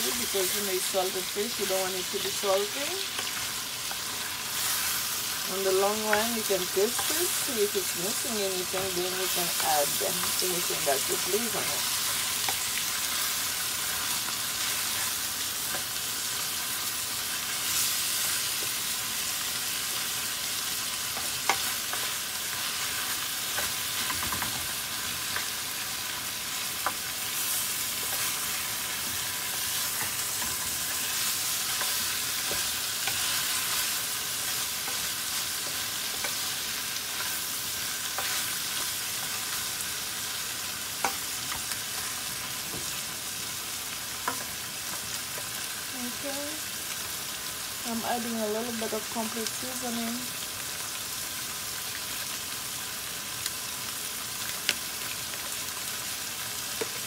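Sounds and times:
fish sizzling in oil: 0.0 - 57.0.

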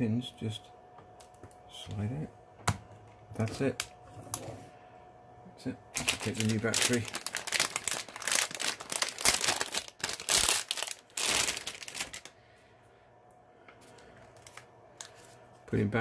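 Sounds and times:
plastic bag crinkling: 5.9 - 12.4, 14.3 - 15.2.

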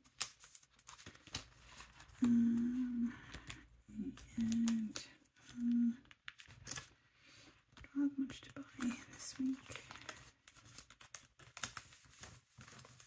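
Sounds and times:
paper rustling: 0.0 - 7.0, 7.7 - 13.0
woman humming: 2.2 - 6.1, 7.9 - 9.7.

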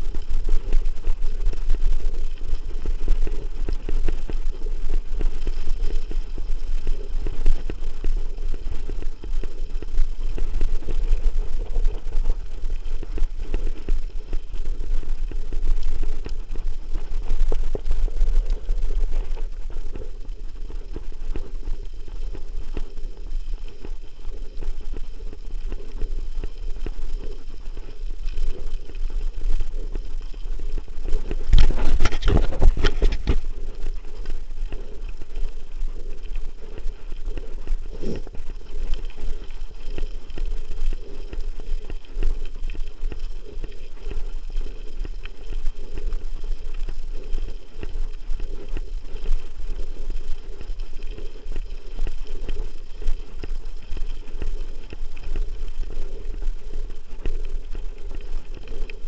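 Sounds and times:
wind buffeting microphone: 31.2 - 33.6.

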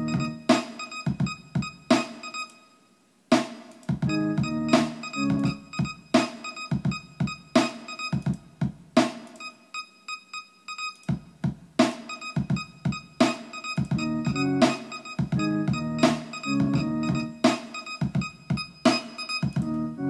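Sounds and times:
drum machine hits: 0.0 - 2.4, 3.3 - 9.5, 11.0 - 19.7
synth stabs: 4.1 - 6.3, 14.0 - 17.6.

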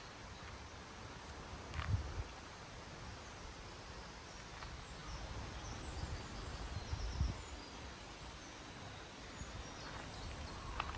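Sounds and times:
wind rumble on microphone: 1.2 - 3.3, 4.5 - 10.9
faint bird chirps: 3.2 - 10.9.

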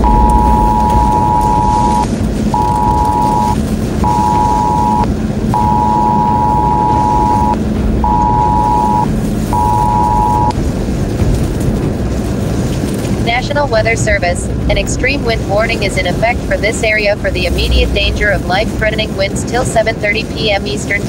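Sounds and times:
phone alert two-pitch beep: 0.0 - 10.6
road and storm noise in car: 0.0 - 21.0.

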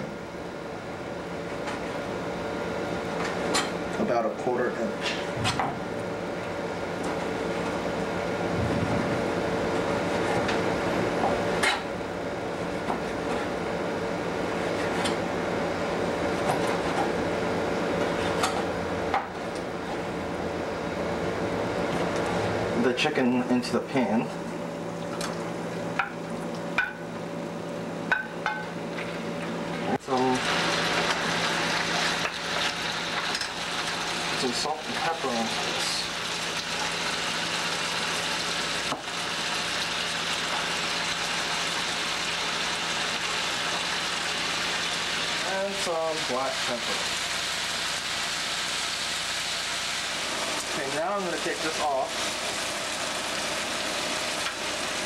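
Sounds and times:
steady background hum: 0.0 - 55.0
chicken sizzling in oil: 30.0 - 55.0.

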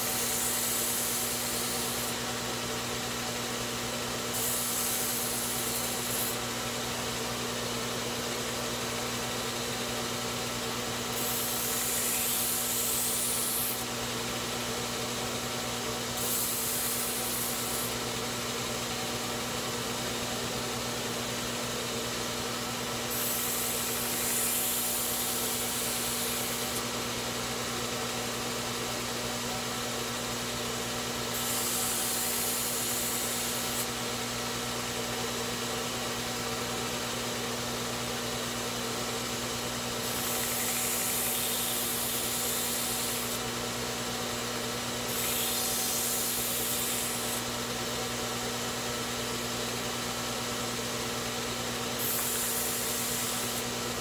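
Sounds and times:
belt grinder motor hum: 4.3 - 6.4, 11.1 - 13.9, 16.1 - 18.0, 23.1 - 26.8, 40.0 - 43.4, 45.0 - 47.5, 52.0 - 54.0.

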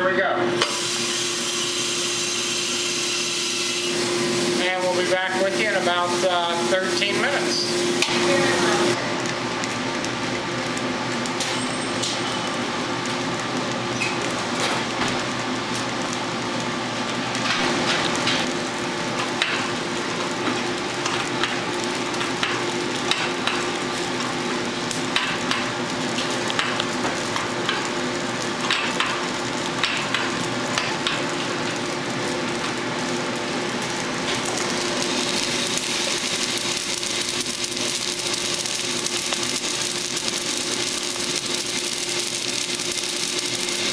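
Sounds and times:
coffee roaster motor hum: 0.0 - 43.9
coffee beans pouring into tray: 33.9 - 43.9.

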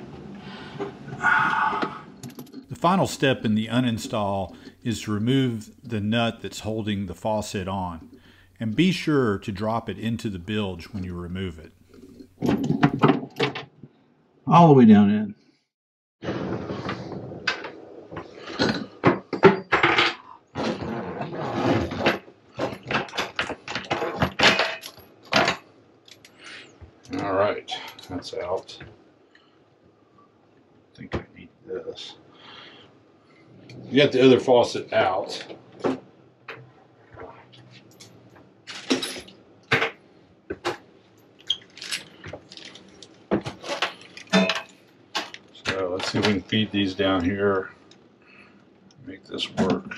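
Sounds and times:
metal hoses scraping and knocking: 11.8 - 13.4, 41.4 - 46.6.

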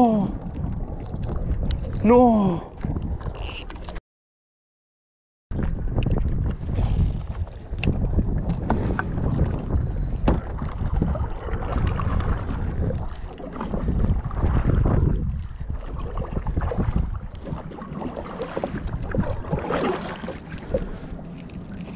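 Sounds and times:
wind buffeting microphone: 0.2 - 3.9, 5.5 - 21.9
paddle strokes splashing: 6.6 - 21.9.

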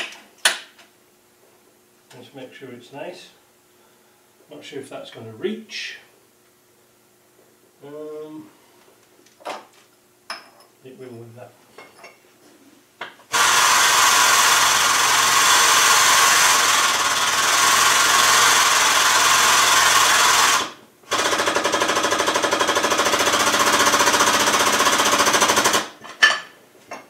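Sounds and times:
hydraulic press pump running: 13.3 - 26.0.

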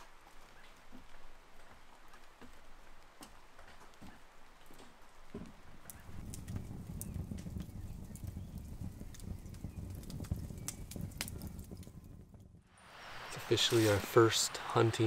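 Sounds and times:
wood fire crackling and popping: 0.0 - 15.0.

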